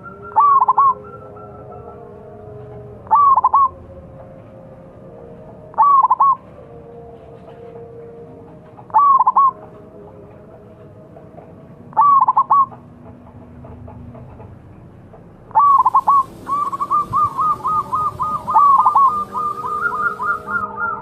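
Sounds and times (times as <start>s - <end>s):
dove cooing: 0.4s - 2.0s, 3.0s - 3.8s, 5.7s - 6.4s, 8.9s - 9.8s, 12.0s - 12.8s, 15.5s - 21.0s.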